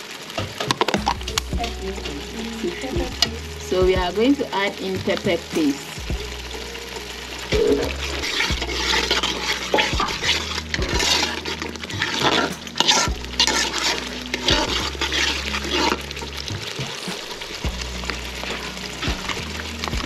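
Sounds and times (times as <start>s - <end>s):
metal spoon stirring thick sauce: 7.5s - 16.5s
spoon scraping metal pot: 7.6s - 16.4s.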